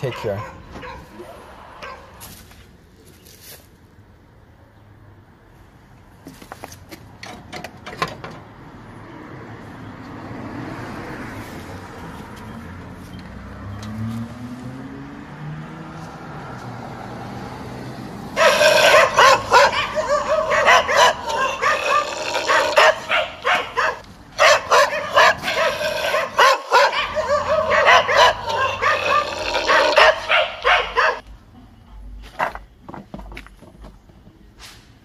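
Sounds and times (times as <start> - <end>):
dog barking and yipping: 0.0 - 1.2, 1.8 - 2.1, 18.4 - 31.2.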